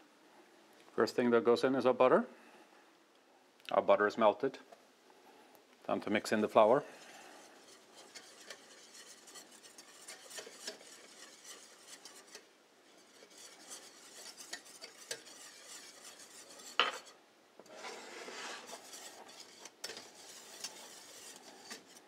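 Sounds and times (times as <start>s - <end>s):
whisk scraping saucepan: 6.3s - 22.0s.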